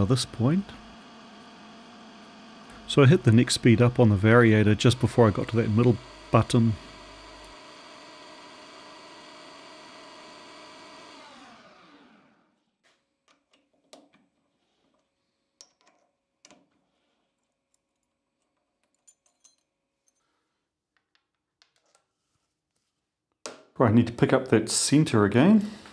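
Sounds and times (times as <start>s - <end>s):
lathe motor whining: 0.0s - 12.6s.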